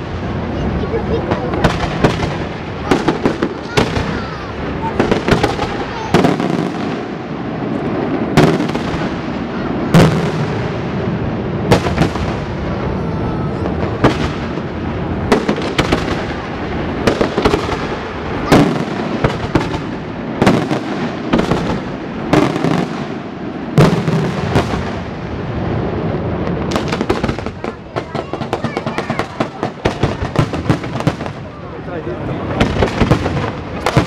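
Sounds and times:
firework crackle: 0.0 - 34.0
firework shells bursting: 13.6 - 25.2, 26.5 - 31.4.

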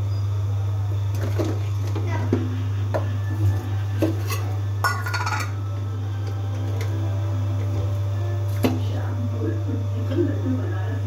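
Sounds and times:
steady low hum: 0.0 - 11.0
utensils and dishes clinking: 3.5 - 7.0.

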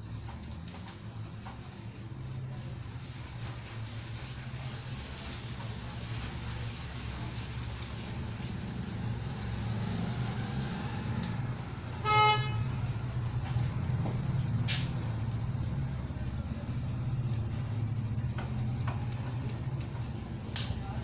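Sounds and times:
vehicle horn toot: 12.0 - 12.9.

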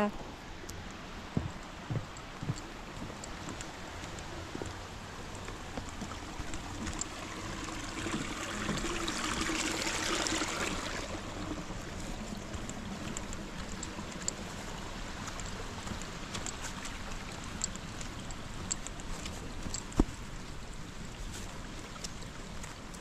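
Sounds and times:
running water rushing: 0.0 - 23.0
faint ticks: 0.6 - 7.2, 11.9 - 23.0.

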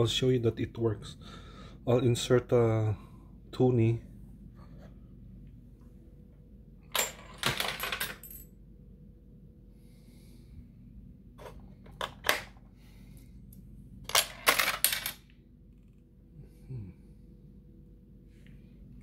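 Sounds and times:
coin rattling through coin mechanism: 6.9 - 8.5, 14.0 - 15.3.

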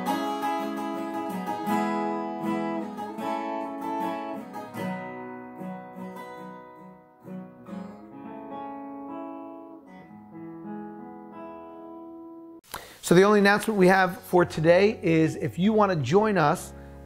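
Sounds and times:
acoustic guitar played softly: 0.0 - 12.7.

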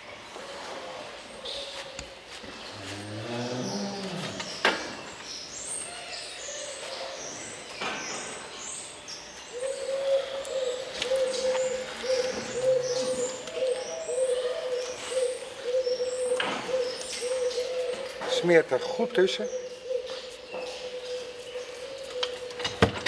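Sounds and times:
small birds chirping: 1.3 - 22.8
pigeon cooing: 9.5 - 18.5.

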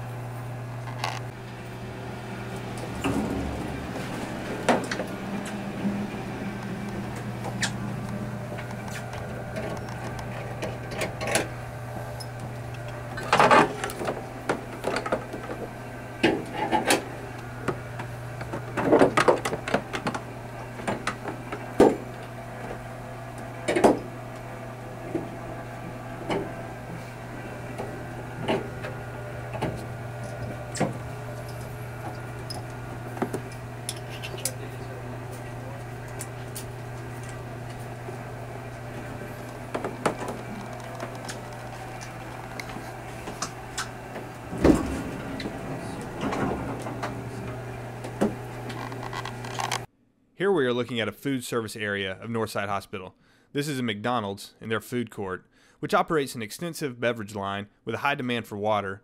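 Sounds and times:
steady low hum: 0.0 - 49.9.

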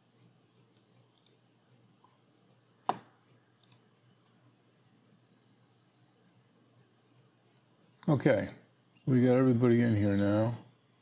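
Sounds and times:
computer mouse clicking: 0.5 - 1.8, 3.6 - 4.4, 7.5 - 8.6, 10.1 - 10.3.

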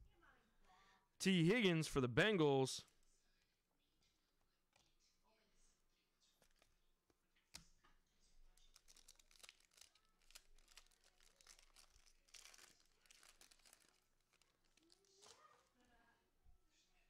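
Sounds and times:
foil pack crinkling and tearing: 8.7 - 15.7.

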